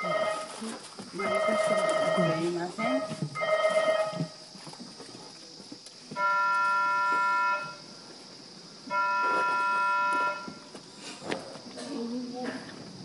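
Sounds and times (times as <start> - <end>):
long horn-like signal tones: 6.2 - 8.0, 8.9 - 10.8.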